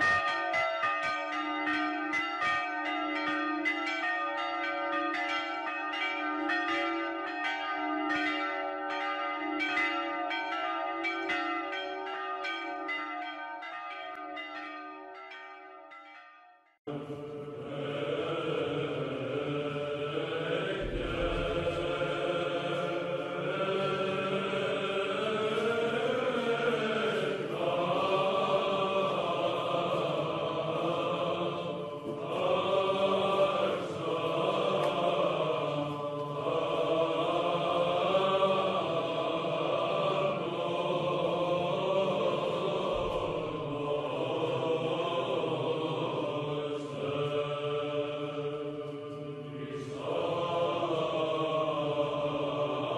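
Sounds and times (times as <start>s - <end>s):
low vocal drone: 16.9s - 52.9s
voices chanting slow melody: 16.9s - 52.9s.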